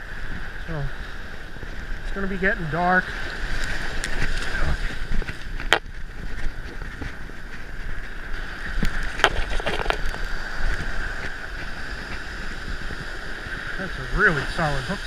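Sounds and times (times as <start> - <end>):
surf: 0.0 - 15.0
wind on microphone: 0.0 - 15.0
sharp clicks and rustles: 3.6 - 12.3.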